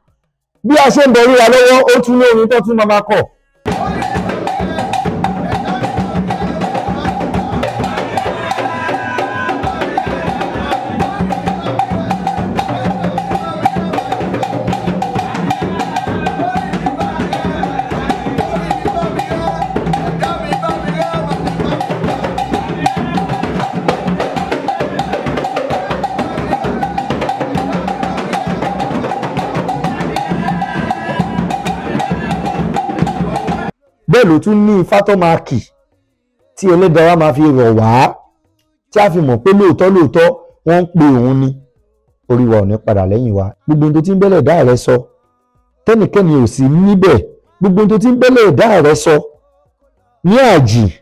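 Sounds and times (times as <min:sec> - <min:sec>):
voices singing: 0:00.7 - 0:51.0
drum ensemble playing: 0:03.6 - 0:35.5.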